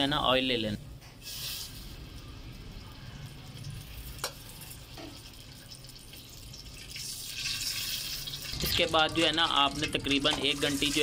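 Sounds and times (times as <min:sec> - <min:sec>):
oil pouring into pot: 0:03.8 - 0:11.0.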